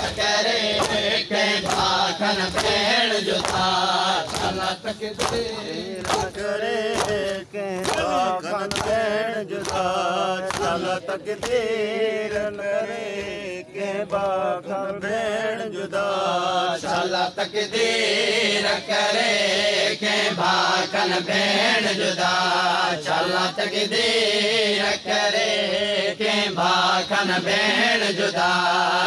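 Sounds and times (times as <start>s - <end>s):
man singing a lament: 0.0s - 20.5s.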